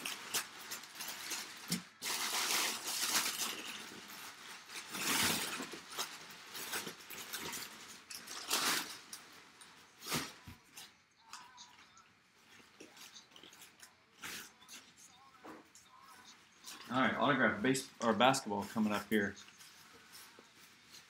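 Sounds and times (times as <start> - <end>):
packing paper rustling: 0.0 - 11.7.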